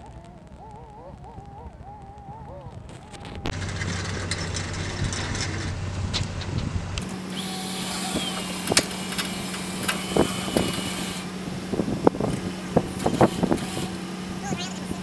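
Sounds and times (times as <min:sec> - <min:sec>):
rigging clicks and knocks: 0:02.9 - 0:07.1
electric winch motor running: 0:03.0 - 0:15.0.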